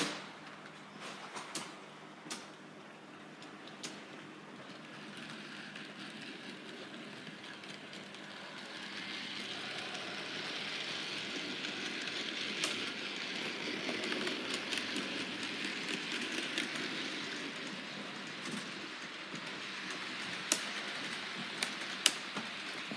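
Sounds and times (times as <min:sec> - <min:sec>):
model train rolling on track: 0:02.2 - 0:22.9.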